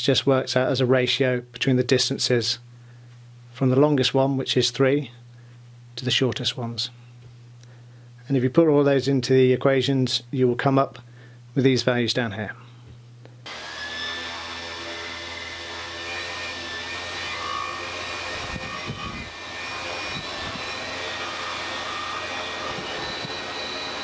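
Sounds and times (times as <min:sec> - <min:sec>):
drone motors whirring: 0:13.5 - 0:24.0.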